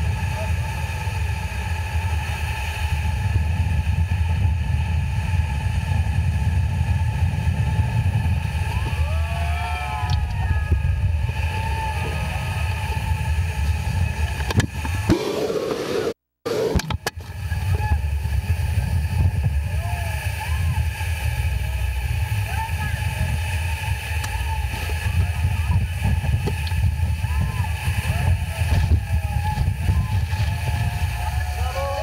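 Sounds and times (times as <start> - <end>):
motorboat engine rumble: 0.0 - 32.0
waterfall: 0.0 - 32.0.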